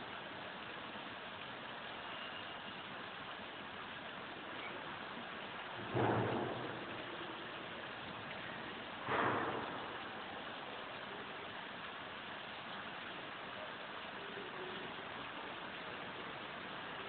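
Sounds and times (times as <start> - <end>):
rain hissing: 0.0 - 17.0
sudden rushes of rain: 0.0 - 17.0.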